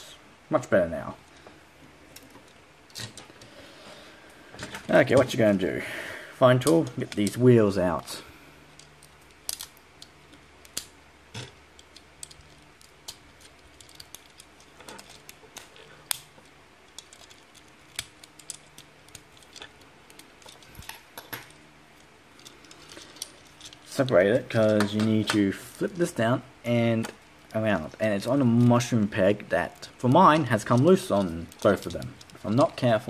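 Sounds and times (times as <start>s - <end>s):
plastic toy parts clicking: 8.7s - 25.4s, 29.7s - 33.0s.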